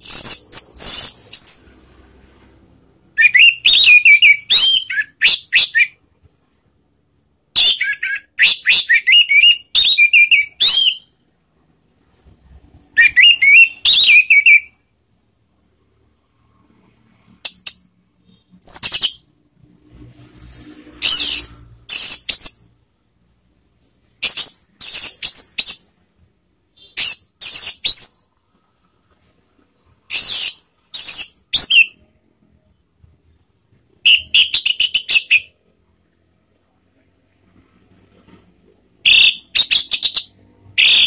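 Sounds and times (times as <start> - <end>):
bird singing whistled phrases: 0.0 - 1.7, 3.2 - 6.0, 7.6 - 11.1, 13.0 - 14.8, 18.3 - 19.2, 26.8 - 28.2, 30.1 - 32.0, 34.0 - 35.5, 39.0 - 41.0.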